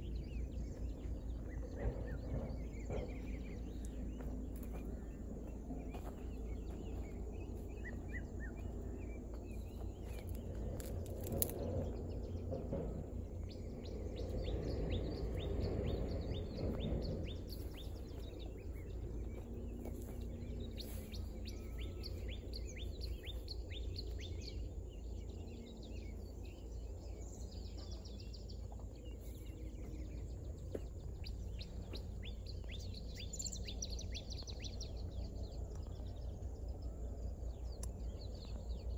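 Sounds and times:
small birds chirping: 0.0s - 38.9s
steady low rumble: 0.0s - 38.9s.

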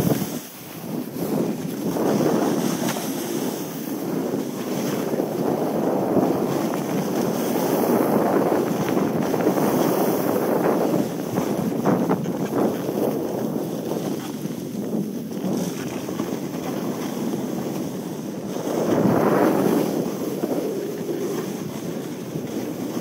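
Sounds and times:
wind buffeting microphone: 0.0s - 23.0s
sliding over snow hiss: 18.5s - 21.7s.

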